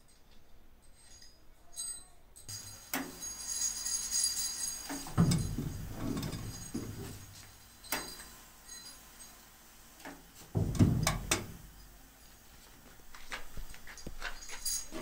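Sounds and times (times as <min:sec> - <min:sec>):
metal levers clinking on wire rack: 0:01.8 - 0:08.4, 0:10.6 - 0:11.8
powder spray gun hiss: 0:02.5 - 0:13.9
low booth hum: 0:05.0 - 0:08.8, 0:10.5 - 0:12.2
heavy thump: 0:05.1 - 0:07.2, 0:10.5 - 0:11.6
sharp knocks: 0:10.6 - 0:11.6.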